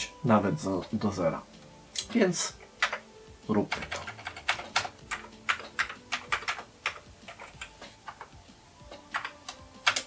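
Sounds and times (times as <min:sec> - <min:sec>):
computer keyboard key clicks: 0:08.9 - 0:10.0.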